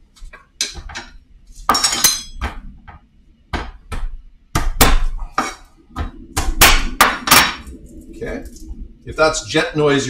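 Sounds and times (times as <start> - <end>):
metallic clink: 1.8 - 2.4.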